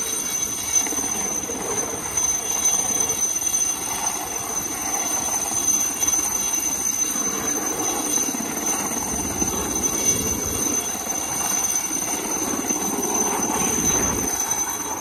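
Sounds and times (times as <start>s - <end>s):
helicopters flying overhead: 0.0s - 15.0s.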